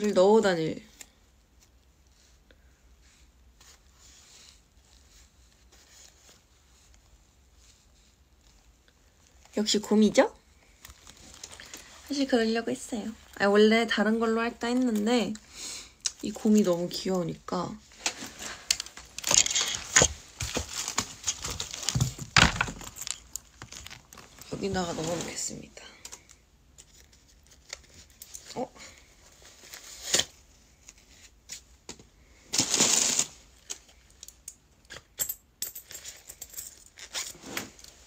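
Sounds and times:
rustling and clicking handling: 0:10.6 - 0:12.1, 0:17.9 - 0:25.4.

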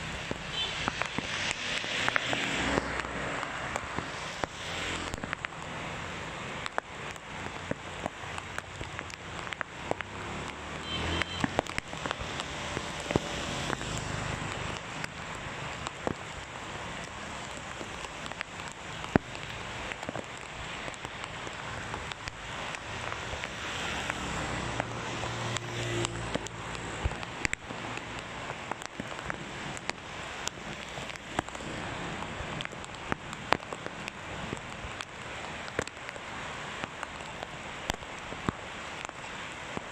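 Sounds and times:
heavy rain on wet road: 0:00.0 - 0:39.9
motorbikes passing on wet asphalt: 0:00.0 - 0:39.9
raindrops ticking: 0:00.0 - 0:39.9.

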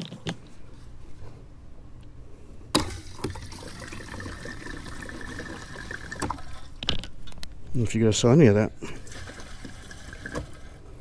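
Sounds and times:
fuel pouring into tank: 0:02.8 - 0:06.8, 0:08.8 - 0:10.8.

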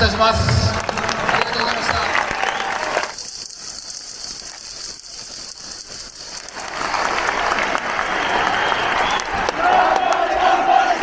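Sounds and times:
crowd roar: 0:00.0 - 0:03.2, 0:06.4 - 0:11.0
crowd clapping: 0:00.0 - 0:11.0.

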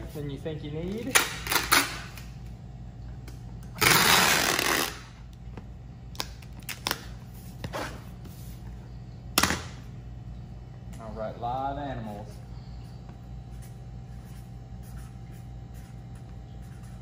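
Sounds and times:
packing tape pulled from tape gun: 0:03.8 - 0:05.1.

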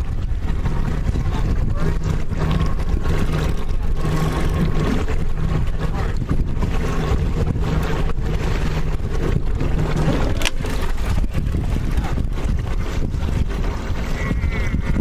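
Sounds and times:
boat engine idling: 0:00.0 - 0:15.0
wind buffeting microphone: 0:00.0 - 0:15.0.

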